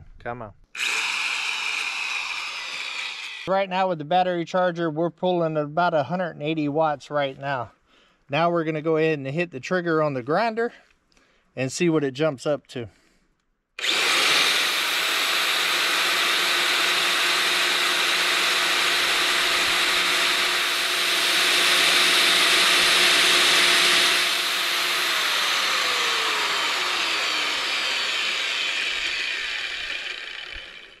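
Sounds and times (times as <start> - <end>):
angle grinder whining: 0.8 - 3.5, 13.8 - 31.0.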